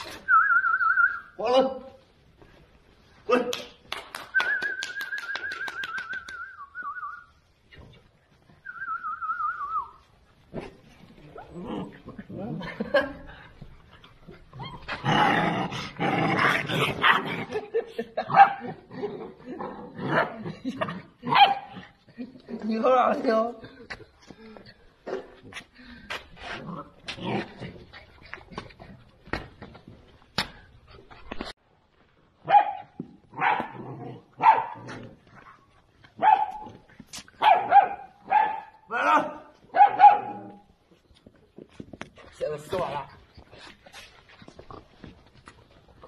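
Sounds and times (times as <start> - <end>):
puppies barking: 39.7 - 40.6.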